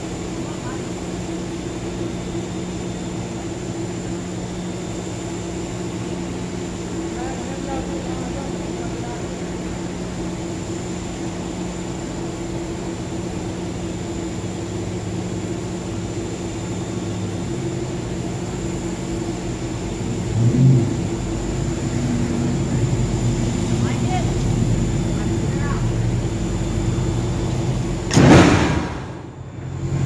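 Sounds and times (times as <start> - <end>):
machinery drone: 14.7 - 30.0.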